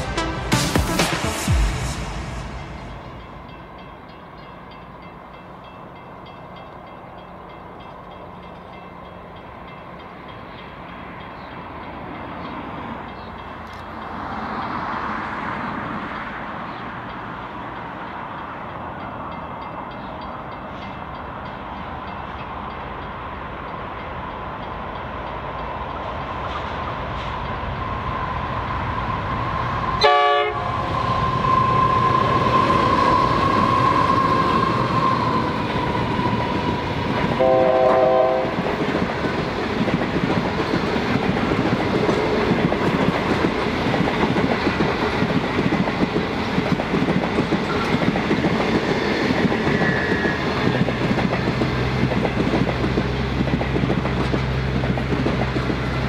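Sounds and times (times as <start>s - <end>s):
steady high-pitched tone: 0.0s - 4.8s
train engine and wheel noise: 0.0s - 56.0s
locomotive horn blast: 30.0s - 30.9s, 37.4s - 38.6s.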